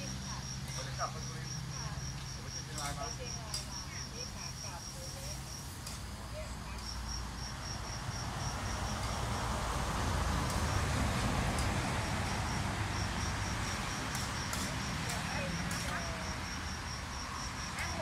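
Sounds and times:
crickets chirping: 0:00.0 - 0:18.0
passing vehicle rushing: 0:05.5 - 0:18.0.

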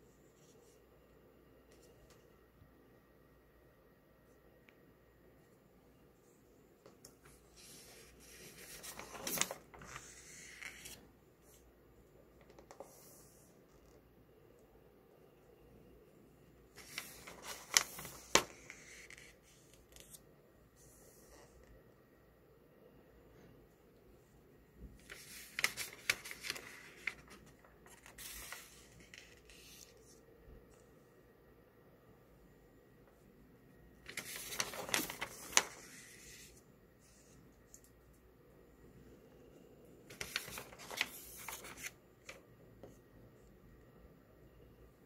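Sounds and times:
magazine paper rustling: 0:06.9 - 0:11.0, 0:16.7 - 0:20.2, 0:25.0 - 0:30.2, 0:34.0 - 0:36.6, 0:40.1 - 0:42.4
sharp paper crackle: 0:07.6 - 0:11.0, 0:16.8 - 0:19.3, 0:25.0 - 0:30.0, 0:34.0 - 0:36.4, 0:40.1 - 0:42.4
page swishing: 0:34.1 - 0:36.6, 0:40.1 - 0:42.0.

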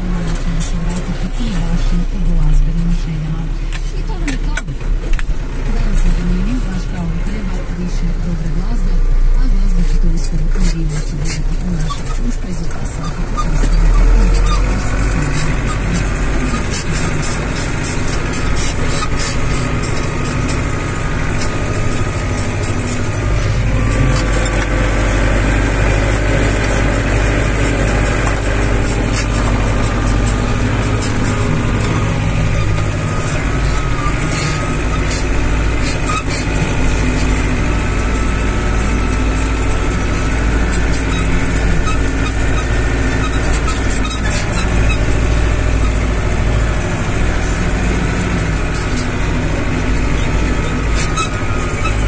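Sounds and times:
tractor diesel engine under load: 0:00.0 - 0:52.0
cab rattles and clicks: 0:03.6 - 0:52.0.

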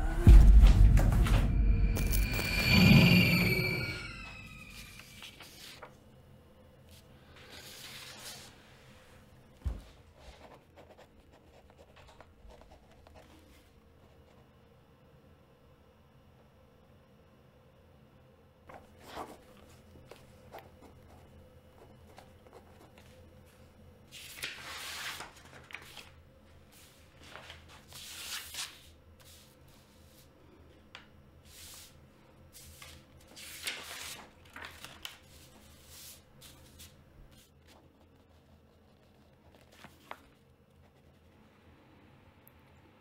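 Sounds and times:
paper rustling: 0:04.8 - 0:06.0, 0:06.9 - 0:08.9, 0:22.1 - 0:30.3, 0:30.9 - 0:40.8.

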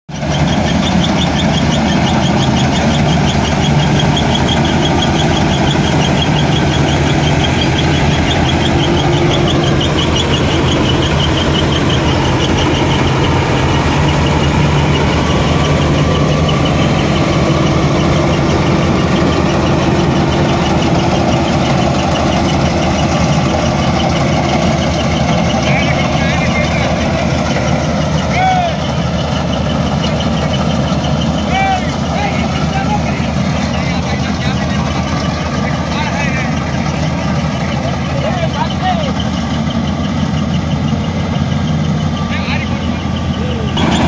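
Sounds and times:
tractor engine running: 0:00.1 - 0:44.0
fast high-pitched machinery ticking: 0:00.2 - 0:44.0.

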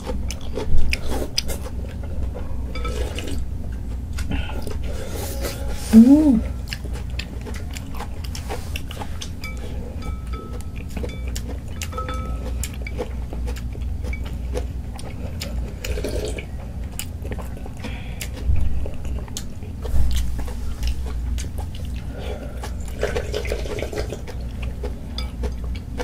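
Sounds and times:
noodles slurped and chewed: 0:00.0 - 0:03.4, 0:10.8 - 0:26.0
steady low hum: 0:00.0 - 0:26.0.

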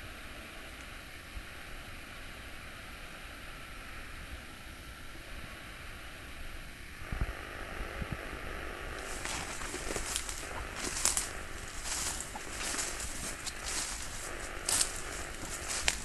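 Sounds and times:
wind rumble on microphone: 0:07.0 - 0:16.0
footsteps through leafy undergrowth: 0:09.0 - 0:16.0.

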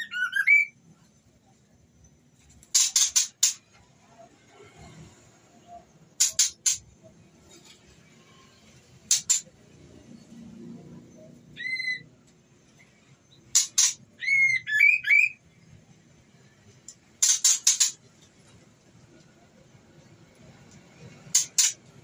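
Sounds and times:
bird whistling: 0:00.0 - 0:00.8, 0:11.5 - 0:12.1, 0:13.8 - 0:15.4.

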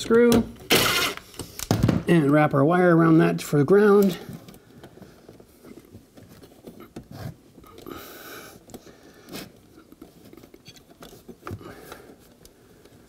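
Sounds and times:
hands handling wires: 0:03.7 - 0:13.0.

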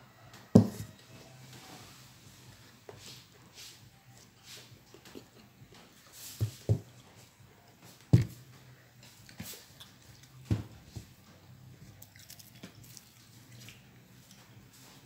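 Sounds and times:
dull knocks on table and plate: 0:00.6 - 0:00.9.

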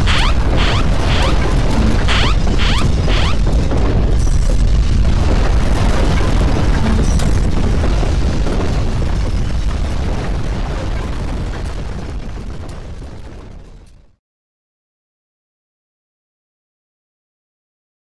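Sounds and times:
earthquake rumble: 0:00.0 - 0:14.2.

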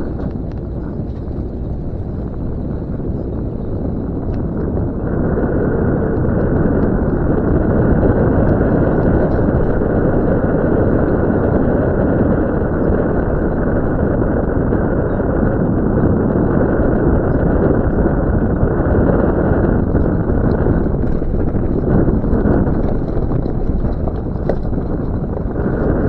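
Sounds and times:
engine and tyres rumbling on dirt: 0:00.0 - 0:26.0
wind buffeting microphone: 0:00.0 - 0:26.0.

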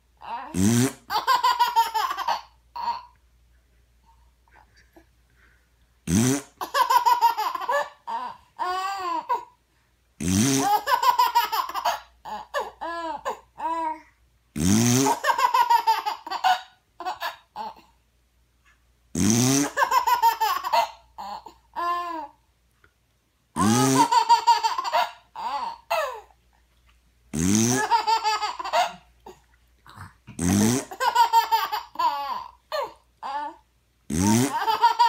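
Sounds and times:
baby giggling: 0:00.2 - 0:03.2, 0:06.4 - 0:09.5, 0:10.6 - 0:13.9, 0:15.0 - 0:17.9, 0:19.6 - 0:22.4, 0:23.6 - 0:26.3, 0:27.7 - 0:33.6, 0:34.4 - 0:35.0
fart sound: 0:00.6 - 0:01.1, 0:06.1 - 0:06.6, 0:10.2 - 0:10.8, 0:14.6 - 0:15.2, 0:19.2 - 0:19.8, 0:23.6 - 0:24.1, 0:27.3 - 0:28.0, 0:29.9 - 0:31.0, 0:34.1 - 0:34.7.

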